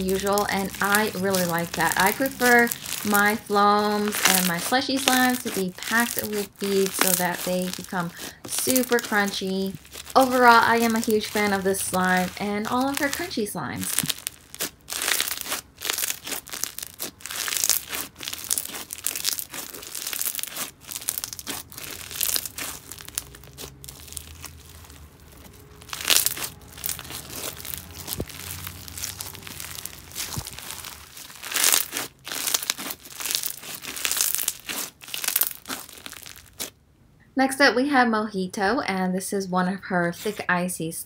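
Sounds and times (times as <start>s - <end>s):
hands squishing slime: 0.0s - 36.8s
slime crunching crackles: 0.0s - 36.8s.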